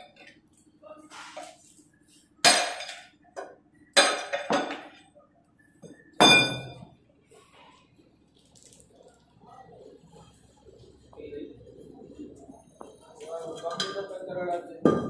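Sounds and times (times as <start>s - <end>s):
hammer striking metal: 2.4s - 3.0s, 6.2s - 6.8s.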